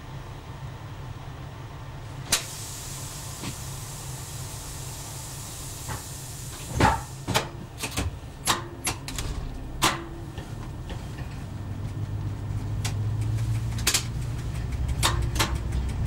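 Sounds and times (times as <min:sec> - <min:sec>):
railcar engine idling: 0:00.0 - 0:16.0
sharp clicks and clunks: 0:07.3 - 0:16.0.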